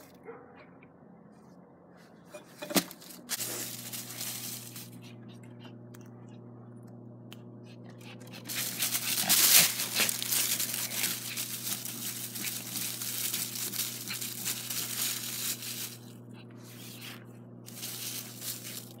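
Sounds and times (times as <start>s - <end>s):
dry leaves rustling and crunching: 2.6s - 5.3s, 8.3s - 19.0s.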